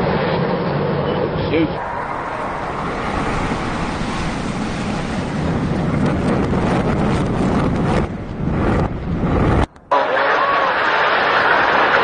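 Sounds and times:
wind buffeting microphone: 0.8s - 9.9s
building collapsing rumble: 1.3s - 9.7s.

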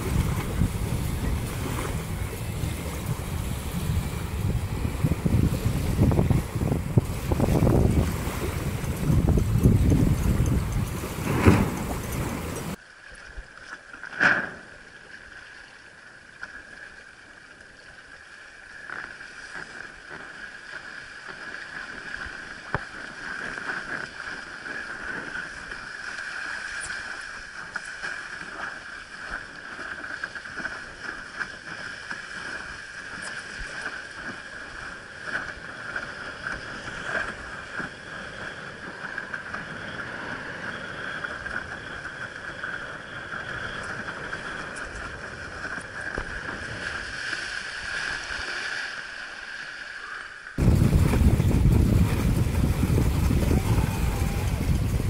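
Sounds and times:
water rushing and splashing: 0.0s - 40.6s, 43.4s - 55.0s
loud splash: 50.6s - 55.0s.

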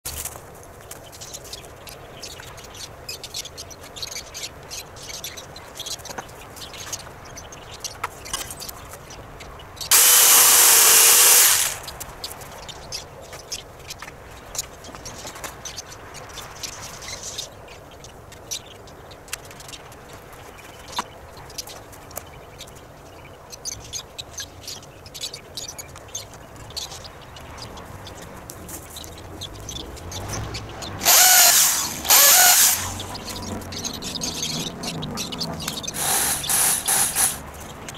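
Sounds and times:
power drill driving into wood: 9.9s - 11.9s, 31.0s - 33.1s, 36.0s - 37.4s.

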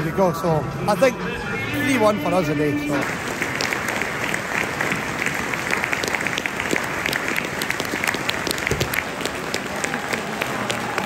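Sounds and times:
stadium crowd applauding: 3.0s - 11.0s.

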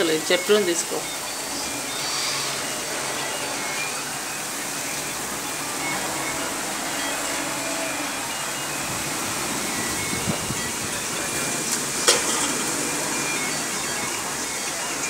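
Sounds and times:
heavy rain: 0.0s - 15.0s
strong wind blowing: 8.8s - 11.2s.

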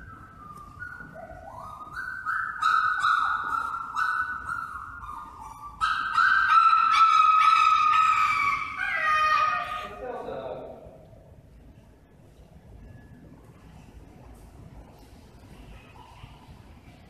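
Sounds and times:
dog whining and howling: 0.0s - 9.9s.

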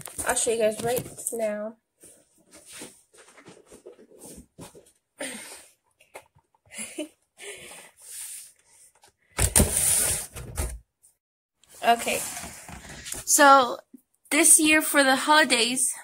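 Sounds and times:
cardboard box rustling and scraping: 11.8s - 13.3s.

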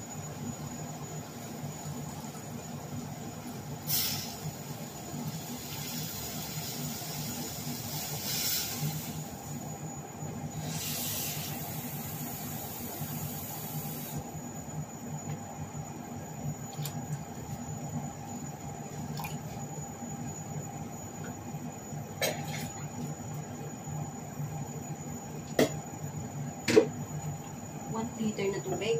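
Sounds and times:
gas burner hum and hiss: 0.0s - 28.9s
water pouring into a pot: 19.0s - 19.6s.

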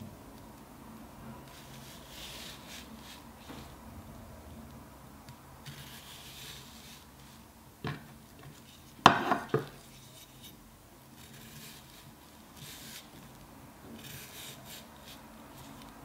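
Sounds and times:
knife knocking on cutting board: 9.0s - 9.7s.

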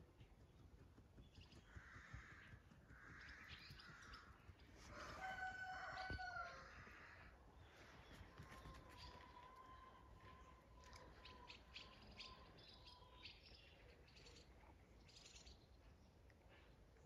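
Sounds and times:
rooster crowing: 4.9s - 7.1s.

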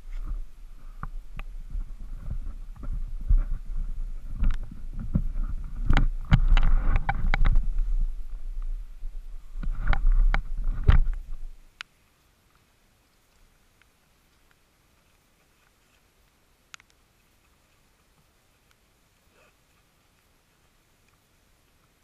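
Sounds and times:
low rumble: 0.0s - 11.7s.

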